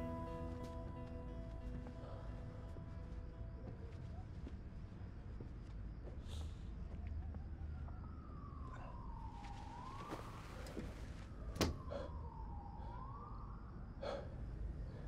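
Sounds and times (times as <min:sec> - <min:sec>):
siren wailing: 0:07.2 - 0:14.4.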